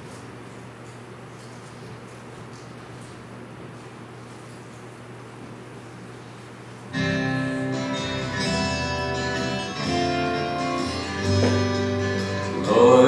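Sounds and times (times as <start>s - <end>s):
slow sustained hymn chords: 7.0s - 13.0s.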